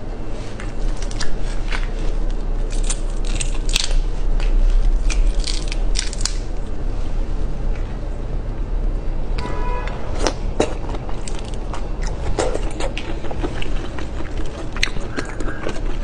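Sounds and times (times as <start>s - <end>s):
steady low hum: 0.0s - 16.0s
prawn shell crackling: 0.9s - 6.7s.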